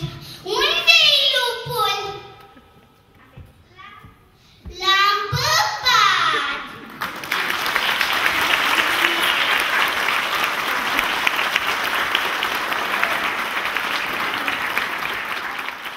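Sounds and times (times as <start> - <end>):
audience applauding: 6.8 - 15.9.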